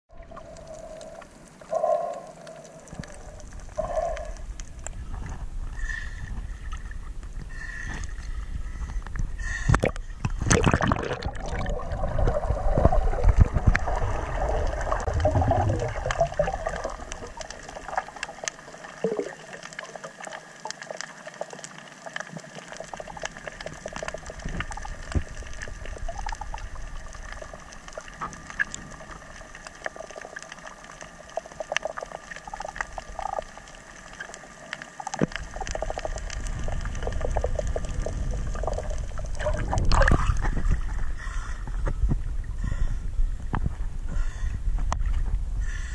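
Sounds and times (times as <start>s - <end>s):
faint underwater clicks and crackles: 0.1s - 45.9s
muffled underwater sound: 0.1s - 45.9s
water sloshing and splashing: 9.7s - 42.3s.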